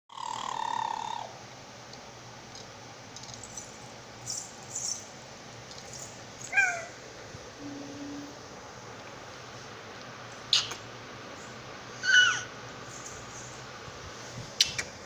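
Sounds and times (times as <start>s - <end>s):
baby squealing: 12.0s - 12.5s
faint hissy rustles: 12.8s - 15.0s.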